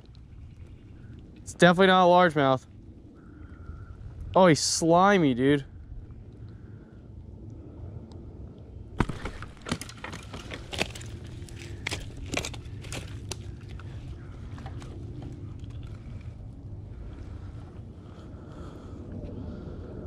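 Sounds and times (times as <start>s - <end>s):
steady low rumble: 0.0s - 20.0s
sharp clicks and crackles: 9.0s - 16.3s
rustling and crackling of handling: 9.0s - 16.5s.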